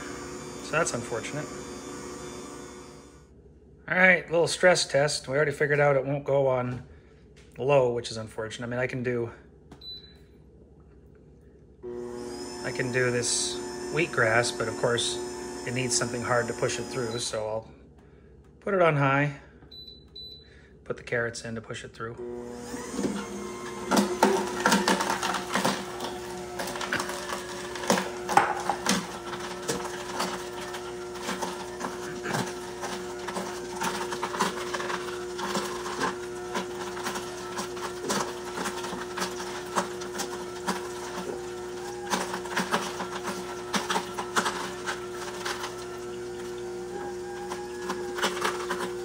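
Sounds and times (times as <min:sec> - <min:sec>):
juicer motor hum: 0:00.0 - 0:03.2, 0:11.8 - 0:17.6, 0:22.2 - 0:49.0.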